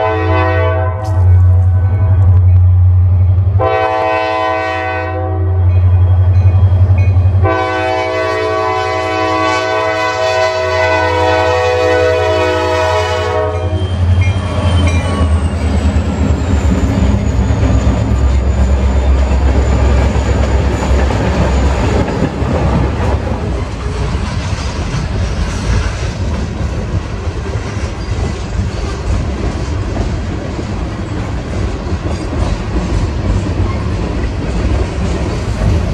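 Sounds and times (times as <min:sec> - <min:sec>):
locomotive horn blasts: 0:00.0 - 0:02.4, 0:03.6 - 0:05.8, 0:07.4 - 0:14.3
train wheels clattering on rails: 0:13.6 - 0:35.9
diesel engines rumbling: 0:13.8 - 0:25.4.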